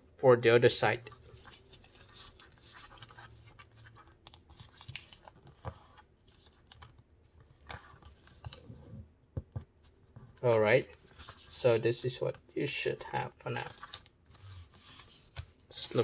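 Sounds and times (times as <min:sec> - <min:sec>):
paper rustling: 0:01.0 - 0:09.0, 0:09.8 - 0:12.3, 0:13.5 - 0:16.0
soft paper crackles and taps: 0:01.1 - 0:11.6.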